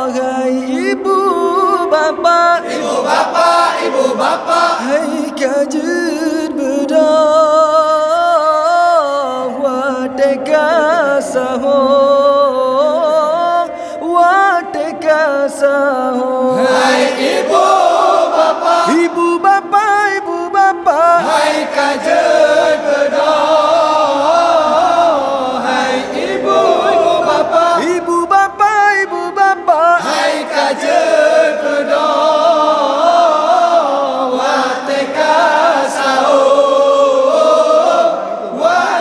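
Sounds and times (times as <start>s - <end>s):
men chanting in unison: 0.0s - 39.0s.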